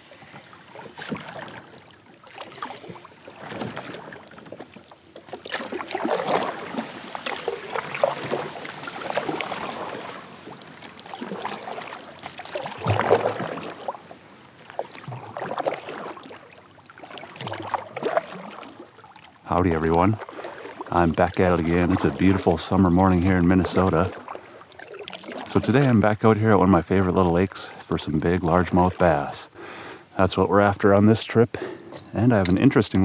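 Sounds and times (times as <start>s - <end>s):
kayak paddle splashing water: 0.0s - 30.1s.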